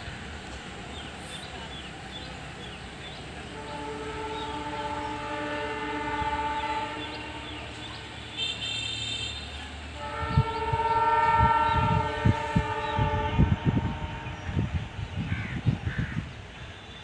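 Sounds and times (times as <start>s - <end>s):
locomotive air horn blasts: 3.4s - 15.0s.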